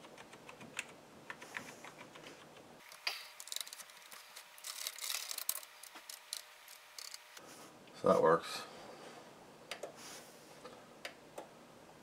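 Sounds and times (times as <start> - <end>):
keyboard keys clicking: 0.0 - 2.6.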